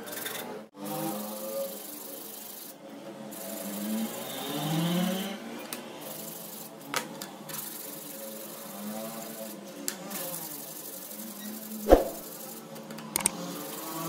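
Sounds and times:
metal strip scraping on emery cloth: 11.9s - 12.2s.

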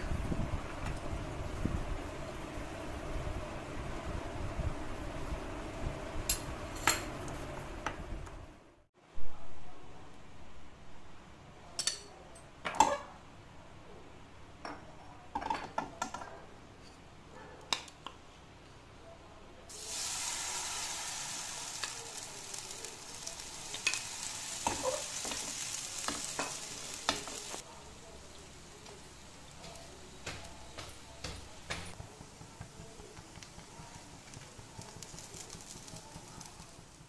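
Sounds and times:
batter sizzling on griddle: 19.7s - 37.0s.

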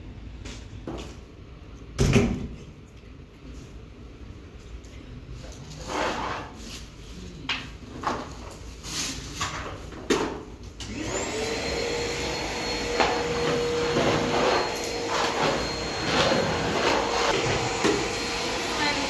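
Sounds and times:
vacuum cleaner running: 10.8s - 19.0s.

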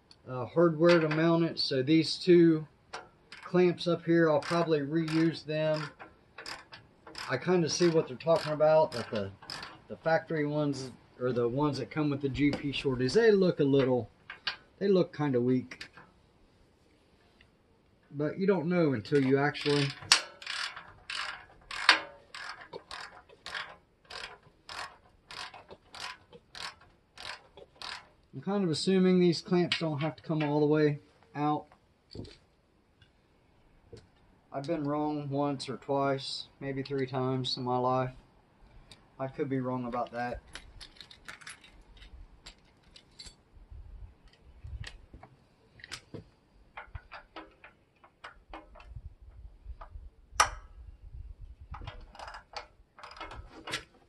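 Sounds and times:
ratchet wrench clicking: 4.4s - 9.8s, 19.6s - 28.2s.

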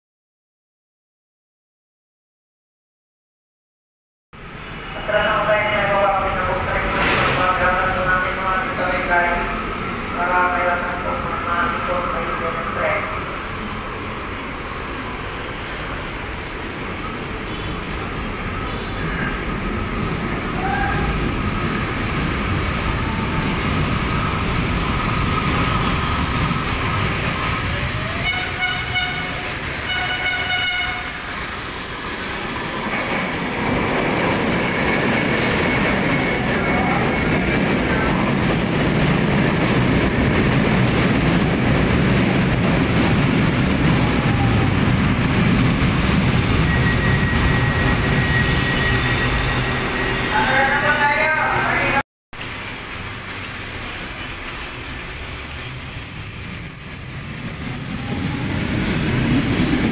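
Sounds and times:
train rumble and wheel noise: 4.4s - 59.9s
thin whine of slowing train: 13.2s - 40.6s, 41.8s - 51.7s, 52.4s - 59.9s
train horn blasts: 28.1s - 31.2s.

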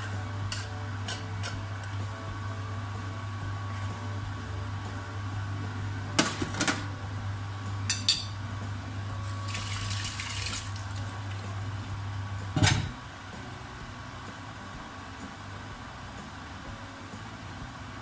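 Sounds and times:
dishes and utensils clinking: 0.0s - 2.0s, 7.8s - 8.4s, 12.6s - 13.0s
steady low hum: 0.0s - 18.0s.

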